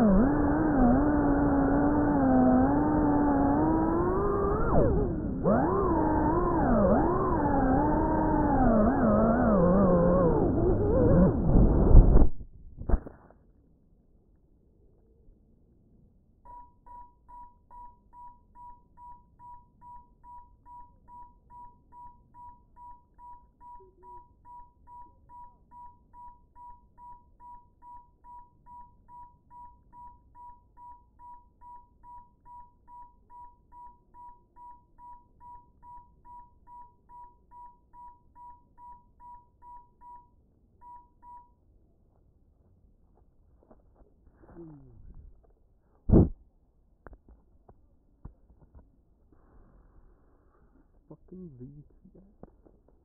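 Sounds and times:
drone buzzer beeping: 0:00.0 - 0:11.6.

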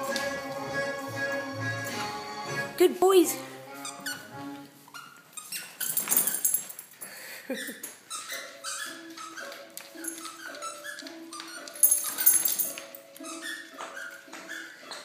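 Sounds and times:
dogs playing: 0:03.7 - 0:15.0
dog whining: 0:07.5 - 0:12.3, 0:13.0 - 0:15.0.

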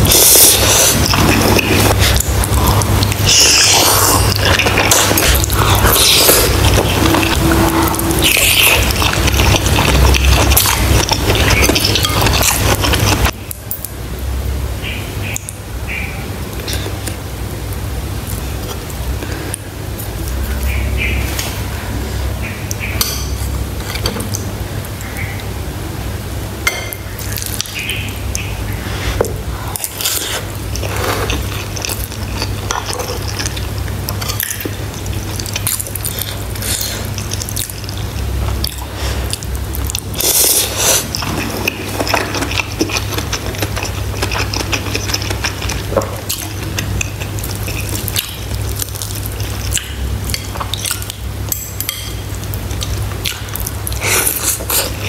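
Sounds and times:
mouth sounds of eating: 0:00.0 - 0:13.8, 0:27.2 - 0:55.0
steady low hum: 0:00.0 - 0:55.0.

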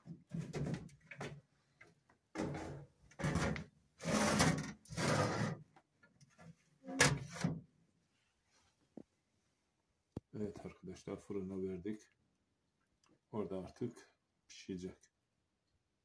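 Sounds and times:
baking tray scraping and sliding: 0:04.0 - 0:05.6.

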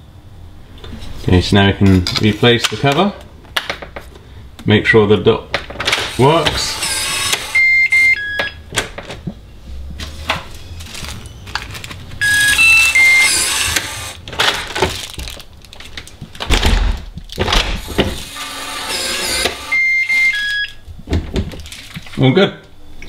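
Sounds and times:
electronic lock beeping tune: 0:06.8 - 0:08.6, 0:12.2 - 0:14.2, 0:19.6 - 0:20.8.

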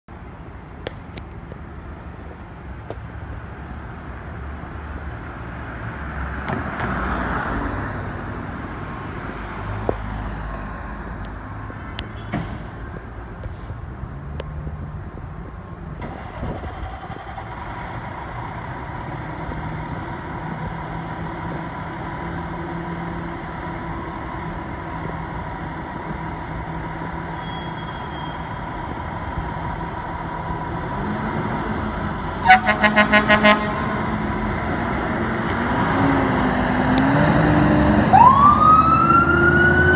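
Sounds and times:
diesel engine idling: 0:15.9 - 0:27.4.

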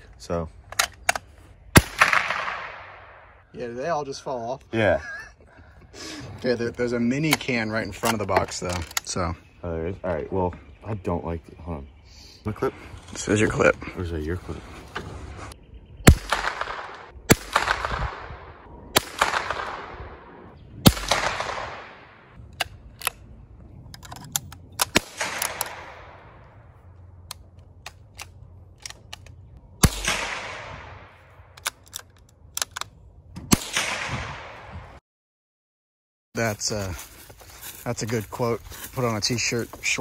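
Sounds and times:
rifle bolt clicks: 0:00.7 - 0:01.3, 0:23.9 - 0:25.8, 0:27.2 - 0:29.4, 0:31.5 - 0:33.0
rifle shots with echo: 0:01.7 - 0:03.3, 0:16.0 - 0:22.4, 0:24.8 - 0:26.5, 0:29.8 - 0:31.2, 0:33.5 - 0:34.8.

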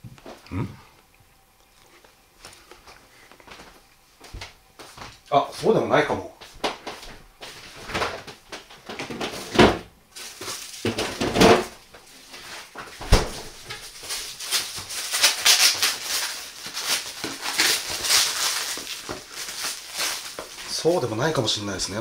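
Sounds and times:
person chewing: 0:00.3 - 0:04.0
crackly noises: 0:06.6 - 0:22.0.

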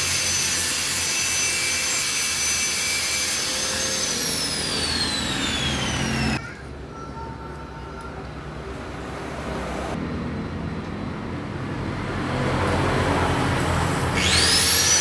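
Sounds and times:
angle grinder grinding metal: 0:00.0 - 0:06.4, 0:14.1 - 0:15.0.

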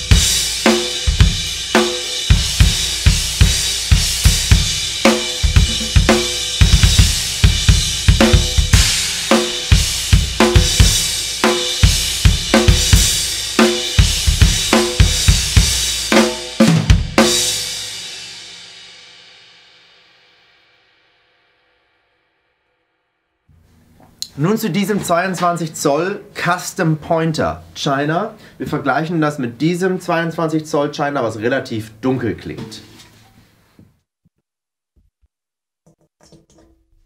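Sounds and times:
drum kit groove: 0:00.0 - 0:18.8
cymbal ringing: 0:05.1 - 0:06.7.

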